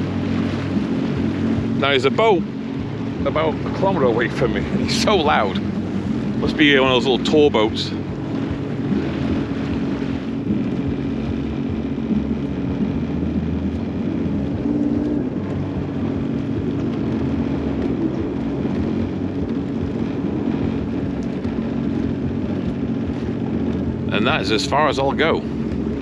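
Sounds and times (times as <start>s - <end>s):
watercraft engine low drone: 0.0s - 26.0s.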